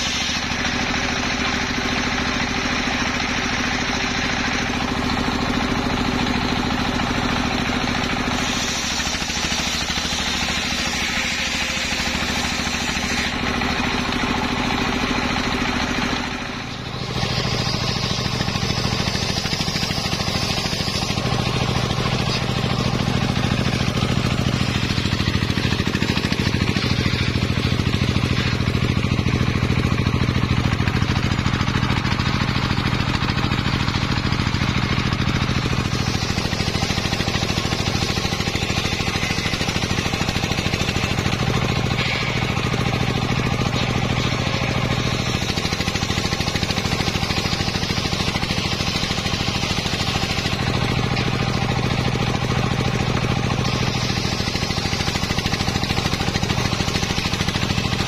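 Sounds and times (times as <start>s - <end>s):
engine drone: 0.0s - 58.0s
saw blade cutting wood: 0.0s - 58.0s.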